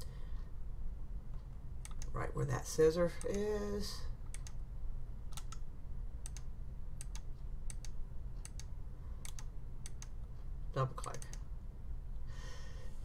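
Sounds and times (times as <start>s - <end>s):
low steady hum: 0.0s - 13.0s
computer mouse clicking: 1.3s - 2.2s, 4.2s - 4.6s, 5.3s - 10.3s.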